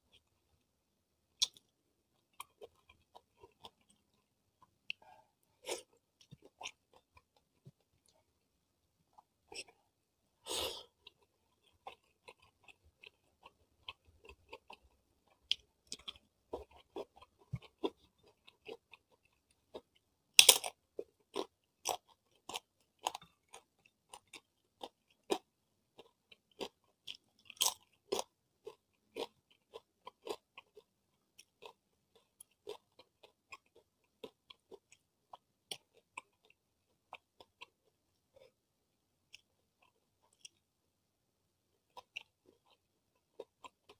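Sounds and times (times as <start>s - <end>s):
person chewing crisp chips: 1.4s - 5.0s, 10.5s - 38.6s, 41.8s - 43.9s.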